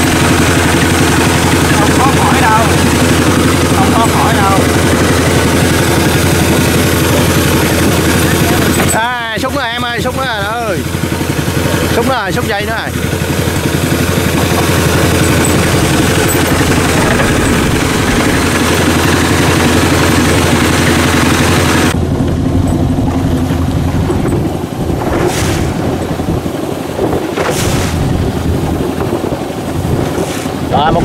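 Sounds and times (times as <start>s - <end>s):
boat motor running: 0.0s - 31.0s
wind: 0.0s - 31.0s
waves lapping at hull: 23.1s - 31.0s
short splashes: 25.0s - 30.8s.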